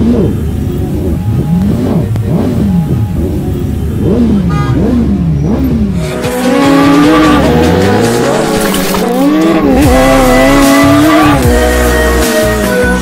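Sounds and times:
superbike engines revving: 0.0s - 13.0s
racing engine revving with screeching hiss: 4.0s - 12.5s.

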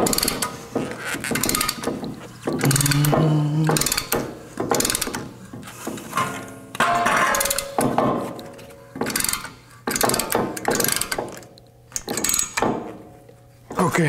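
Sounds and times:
hand ratchet clicking: 0.0s - 5.3s, 9.0s - 12.6s.

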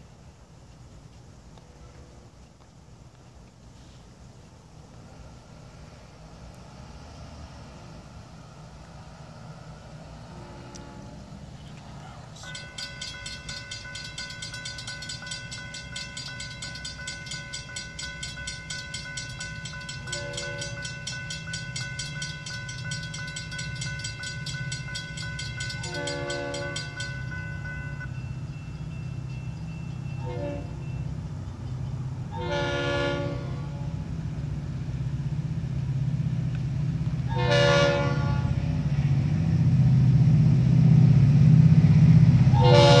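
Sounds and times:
diesel train rumble: 0.0s - 43.0s
railroad crossing bell ringing: 8.9s - 35.4s, 37.3s - 39.8s, 41.8s - 43.0s
train horn blasts: 10.0s - 11.5s, 12.3s - 31.2s, 32.3s - 34.2s, 37.3s - 38.9s, 42.5s - 43.0s.

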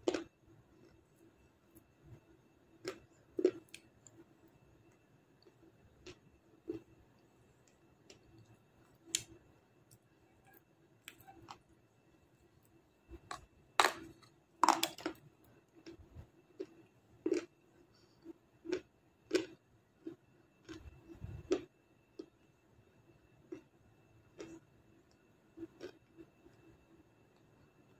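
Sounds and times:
crunchy chewing: 0.0s - 2.2s, 2.8s - 7.0s, 12.4s - 22.3s, 24.3s - 26.3s.

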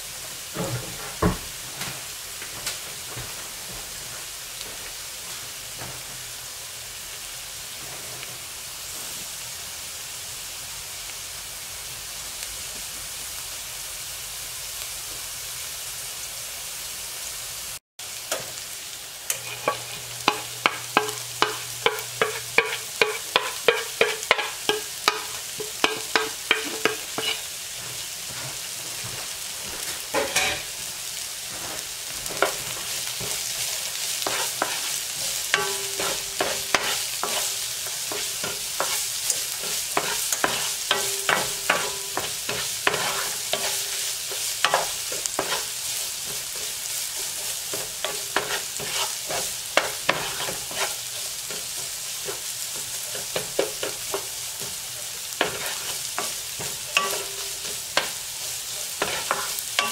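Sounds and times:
onion sizzling in oil: 0.0s - 59.9s
sharp taps on a pan: 20.3s - 27.4s
wooden spatula stirring: 21.0s - 29.1s, 31.5s - 59.9s.

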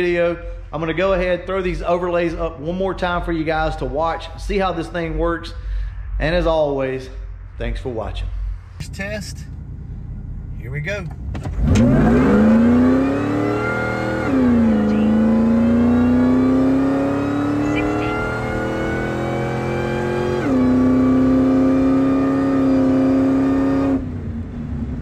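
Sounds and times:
engine at full throttle: 11.2s - 25.0s.

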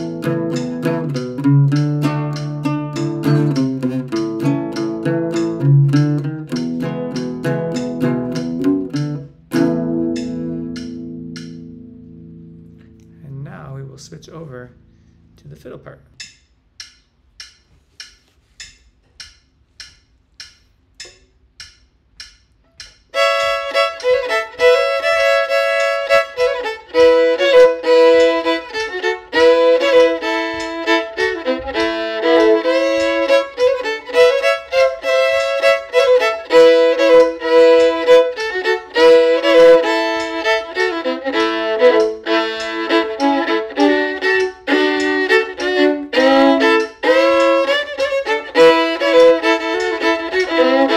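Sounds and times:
fiddle playing old-time tune: 0.0s - 11.5s, 23.1s - 50.9s
metronome clicks: 0.0s - 50.9s.

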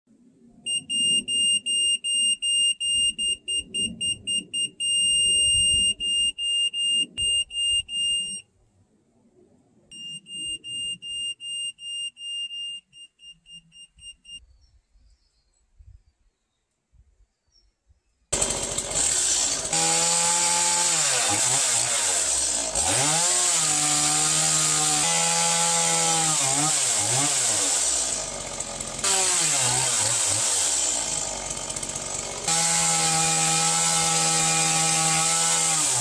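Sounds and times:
electronic level beeping: 0.7s - 8.4s, 9.9s - 14.4s.

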